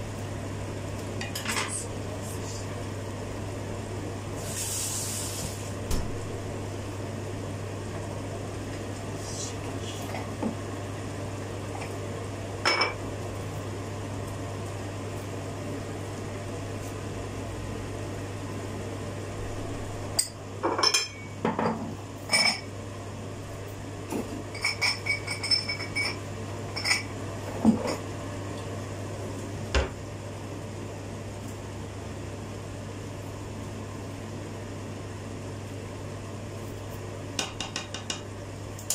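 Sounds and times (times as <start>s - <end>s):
steady low hum: 0.0s - 38.9s
dishes and utensils clinking: 24.6s - 26.2s.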